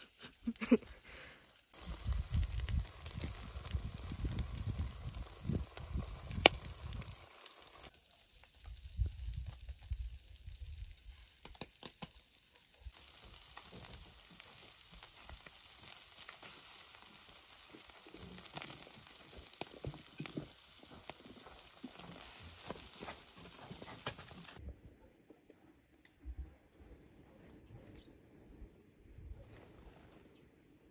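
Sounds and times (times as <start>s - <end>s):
fish sizzling in hot oil: 0.6s - 24.6s.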